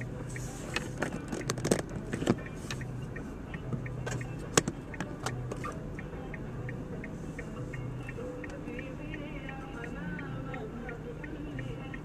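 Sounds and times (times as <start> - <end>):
faint regular ticking: 0.0 - 12.0
low steady hum: 0.0 - 12.0
sharp clicks and rattles: 0.8 - 2.5.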